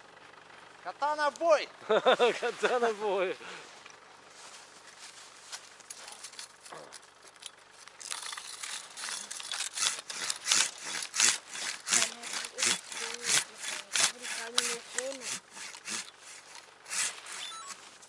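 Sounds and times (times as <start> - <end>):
hand saw cutting wood: 8.0 - 17.6.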